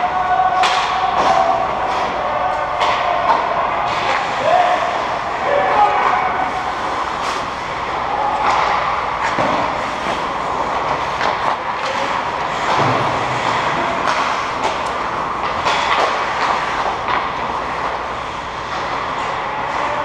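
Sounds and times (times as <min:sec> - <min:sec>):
hockey sticks and puck clacking: 0:00.0 - 0:20.0
skates scraping on ice: 0:05.8 - 0:20.0.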